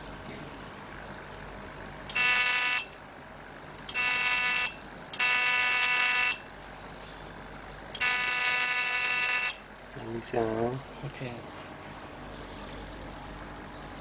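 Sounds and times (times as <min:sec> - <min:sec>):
electronic handpiece buzzing: 0:02.0 - 0:09.9.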